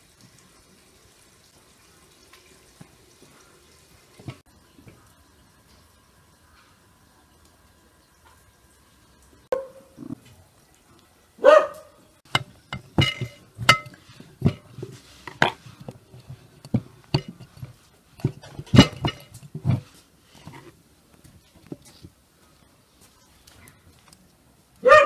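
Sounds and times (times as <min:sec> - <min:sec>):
dog barking: 0:09.5 - 0:09.9, 0:11.4 - 0:12.0, 0:24.8 - 0:25.0.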